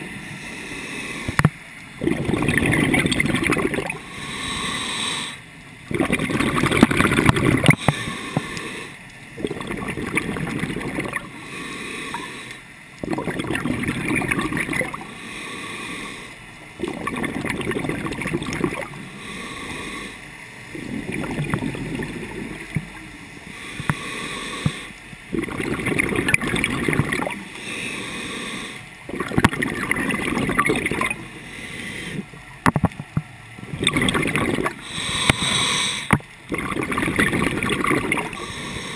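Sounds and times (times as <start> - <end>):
diver exhaling bubbles through regulator: 2.0 - 5.2, 5.9 - 12.4, 13.0 - 15.2, 16.8 - 22.9, 23.6 - 31.2, 33.7 - 38.9.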